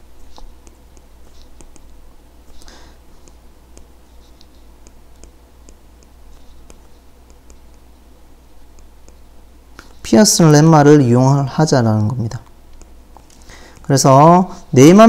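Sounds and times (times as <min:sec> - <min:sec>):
faint low hum: 0:00.0 - 0:15.0
stylus tapping on tablet screen: 0:00.3 - 0:07.9, 0:08.6 - 0:10.0, 0:12.4 - 0:13.9.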